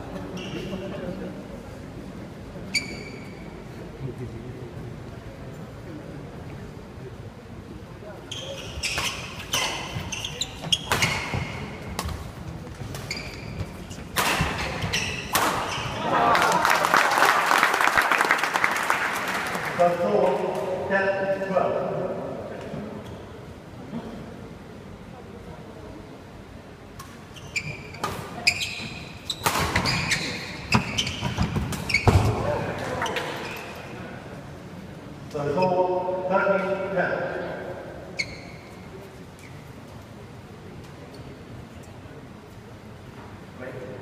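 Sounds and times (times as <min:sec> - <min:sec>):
shoes squeaking on wooden court: 0:00.2 - 0:00.9, 0:02.7 - 0:03.5, 0:08.2 - 0:16.0, 0:27.0 - 0:34.0, 0:38.1 - 0:39.9
spectators' noise: 0:13.6 - 0:19.9
racket hitting shuttlecock: 0:14.1 - 0:15.8
crowd applause: 0:16.0 - 0:19.8.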